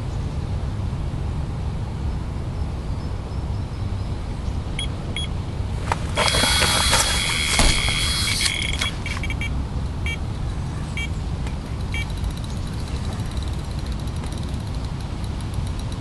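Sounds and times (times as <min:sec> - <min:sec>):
bite alarm beeping: 0:06.2 - 0:10.3, 0:11.8 - 0:12.4.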